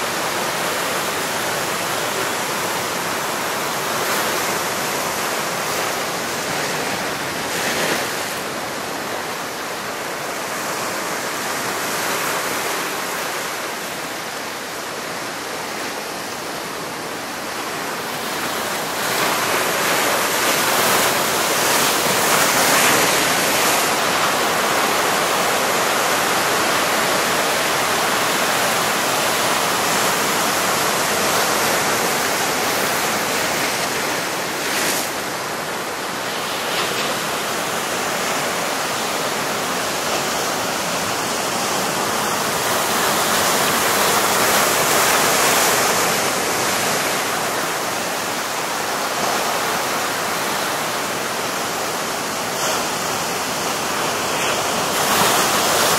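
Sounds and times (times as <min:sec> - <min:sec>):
surf breaking on rocky shore: 0:00.0 - 0:55.9.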